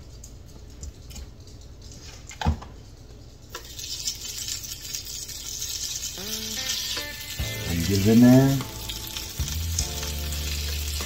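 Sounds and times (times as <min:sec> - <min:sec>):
potatoes sizzling: 0:03.5 - 0:11.0.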